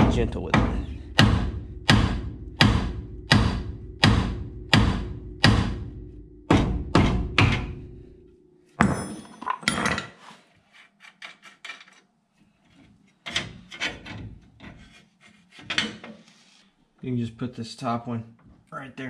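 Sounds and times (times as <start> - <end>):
sledgehammer hitting steel: 0.0 - 8.0, 8.8 - 9.8.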